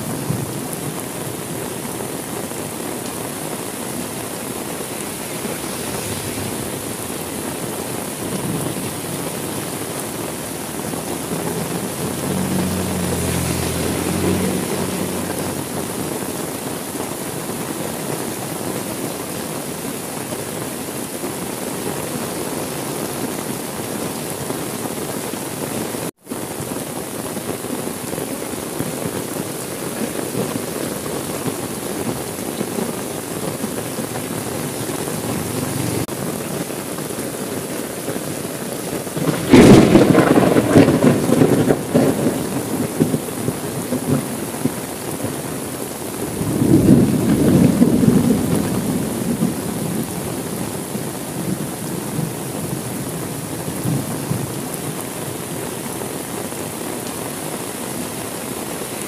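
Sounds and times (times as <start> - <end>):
heavy rain: 0.0 - 59.0
thunder crack and rumble: 4.2 - 16.2, 39.1 - 45.4, 46.2 - 52.3.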